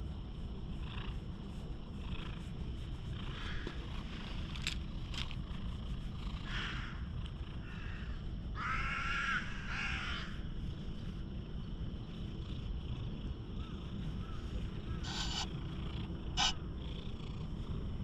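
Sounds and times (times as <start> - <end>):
cat purring: 0.0 - 7.6, 10.6 - 18.0
crow cawing: 7.6 - 10.4.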